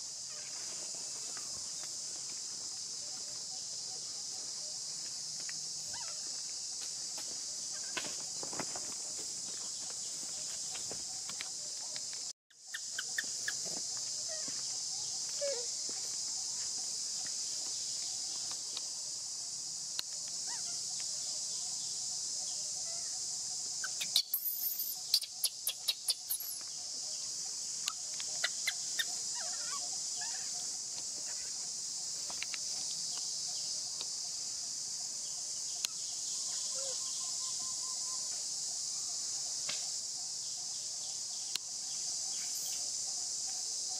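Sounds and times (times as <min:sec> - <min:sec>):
insects droning: 0:00.0 - 0:43.9.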